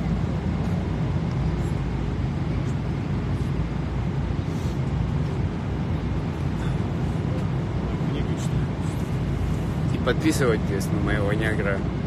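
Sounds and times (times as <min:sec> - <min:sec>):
airliner engine drone: 0:00.0 - 0:12.0.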